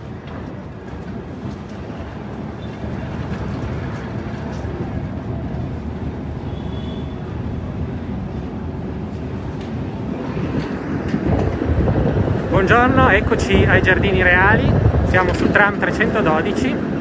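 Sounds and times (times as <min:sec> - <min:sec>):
tram wheels rumbling on rails: 0:00.0 - 0:17.0
faint high squeal: 0:06.5 - 0:07.2.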